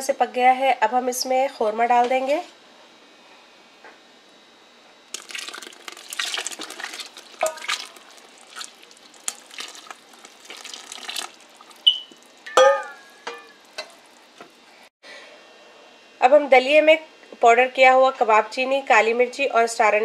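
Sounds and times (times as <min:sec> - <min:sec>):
liquid poured sloshing: 0:05.1 - 0:14.9
porridge simmering: 0:05.1 - 0:14.9
metal ladle scraping pot: 0:05.2 - 0:14.5.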